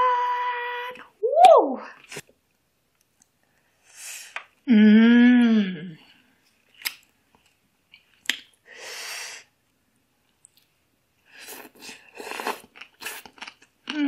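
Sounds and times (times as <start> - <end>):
wet slurping and chewing: 11.4 - 14.0.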